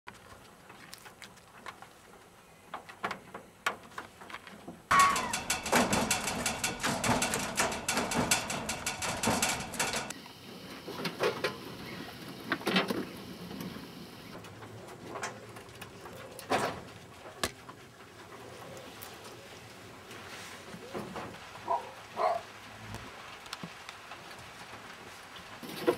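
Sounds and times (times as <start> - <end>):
animals clattering on wire cages: 2.8 - 22.5, 25.6 - 25.9
short sharp squeaks: 4.9 - 5.5.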